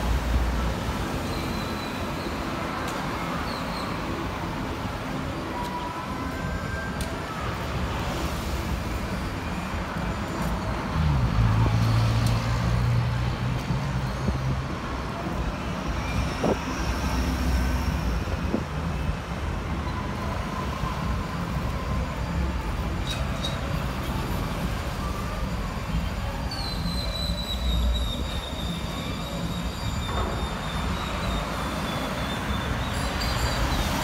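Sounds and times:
cars driving past: 0:07.8 - 0:26.9.

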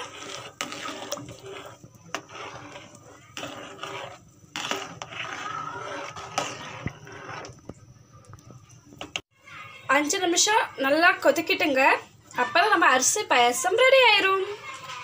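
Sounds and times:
ladle scraping and knocking on pot: 0:00.0 - 0:07.8
liquid swishing: 0:00.0 - 0:08.4.

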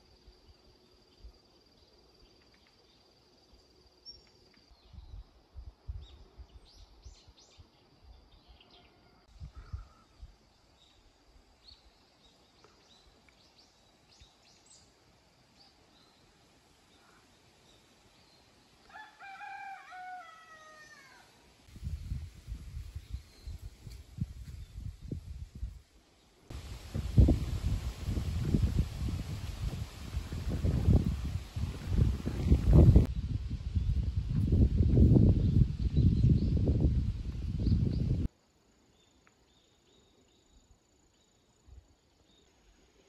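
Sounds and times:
faint high insect trill: 0:00.0 - 0:43.0
rooster crowing: 0:18.9 - 0:21.4.

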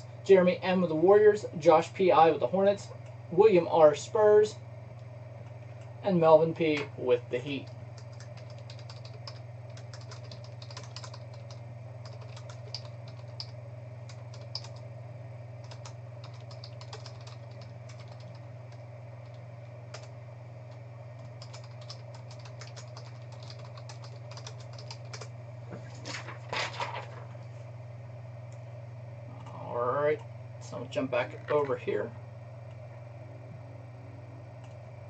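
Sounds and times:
steady low hum: 0:00.0 - 0:35.0
computer keyboard typing: 0:07.5 - 0:14.9, 0:15.6 - 0:20.1, 0:20.7 - 0:25.3.

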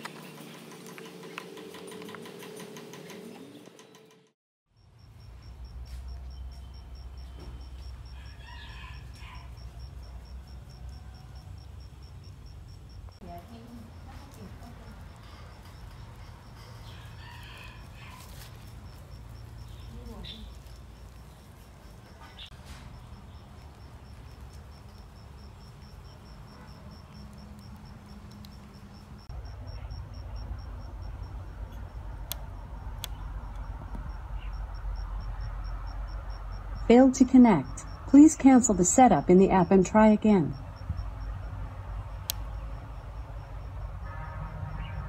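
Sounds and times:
insect chirping: 0:04.7 - 0:45.0.

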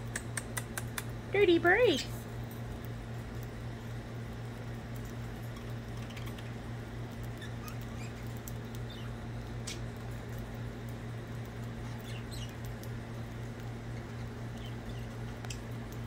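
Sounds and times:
steady low hum: 0:00.0 - 0:16.0
birds cracking seed: 0:04.7 - 0:16.0
soft bird chirps: 0:07.4 - 0:09.9, 0:11.8 - 0:12.8, 0:14.5 - 0:15.7.

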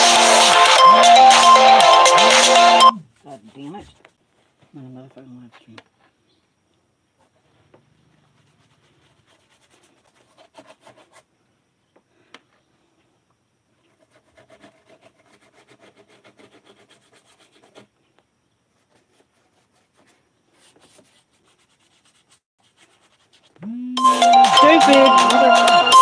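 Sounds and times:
rubbing strokes on wood: 0:08.2 - 0:11.3, 0:13.8 - 0:17.9, 0:18.8 - 0:23.6.

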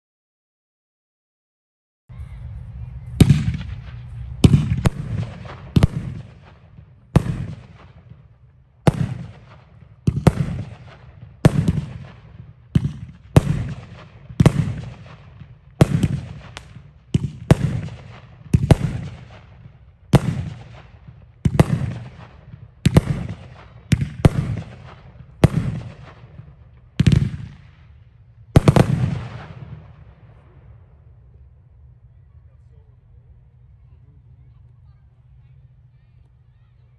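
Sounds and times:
fireworks booming: 0:03.1 - 0:31.1.

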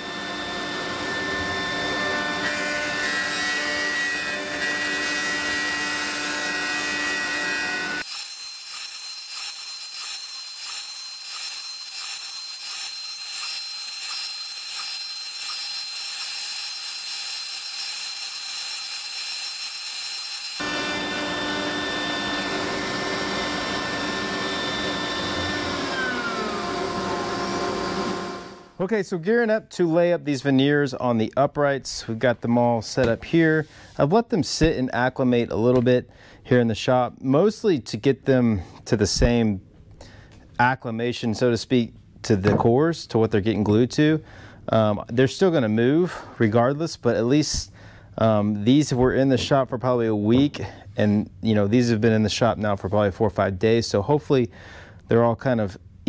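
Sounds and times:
router spindle whine: 0:00.0 - 0:28.8
wood cutting noise: 0:00.0 - 0:28.8.

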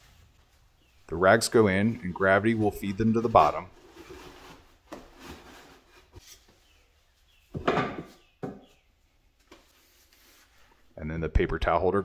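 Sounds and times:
wooden knocks with rubbing: 0:07.5 - 0:08.8.

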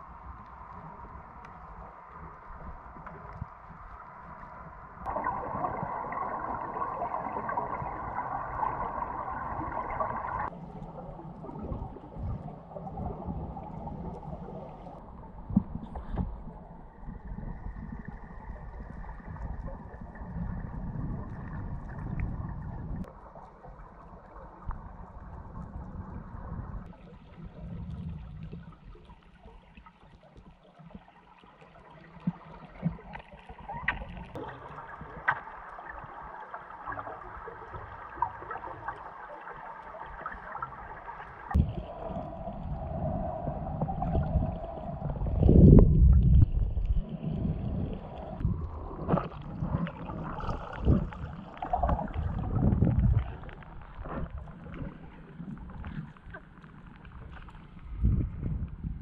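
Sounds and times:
small underwater clicks: 0:00.0 - 0:58.9
underwater rumbling gurgling wash: 0:00.0 - 0:59.0.

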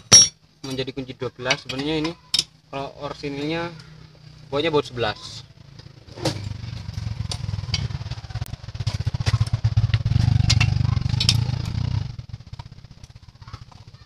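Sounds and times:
motorcycle engine running: 0:03.8 - 0:14.0.

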